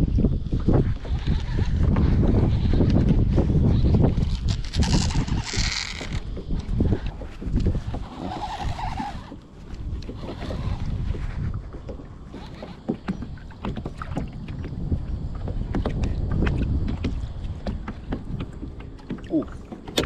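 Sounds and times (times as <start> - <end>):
waves slapping kayak hull: 0.0 - 20.0
wind buffeting microphone: 0.0 - 20.0
knocks and clicks of fishing gear: 4.2 - 8.3, 9.2 - 20.0.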